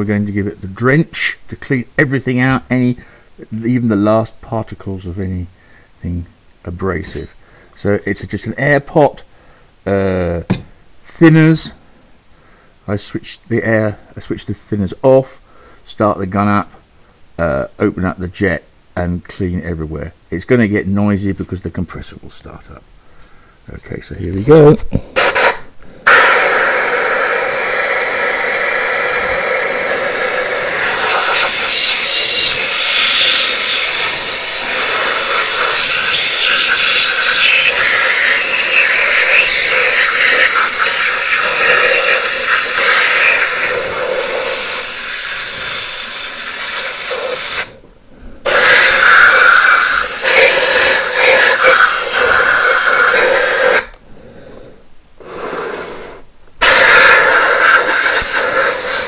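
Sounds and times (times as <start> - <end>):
spray gun hissing: 25.2 - 47.8, 48.4 - 53.9, 55.2 - 59.0.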